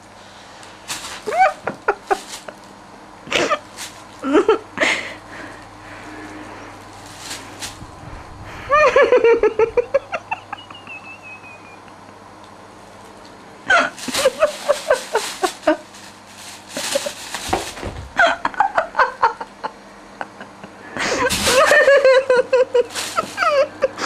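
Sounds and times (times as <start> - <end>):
plastic bag crinkling: 0.6 - 2.8, 3.5 - 4.4, 5.5 - 8.1, 12.8 - 18.4, 21.2 - 23.7
high-pitched human laughter: 1.2 - 2.3, 8.6 - 12.0, 18.2 - 24.0.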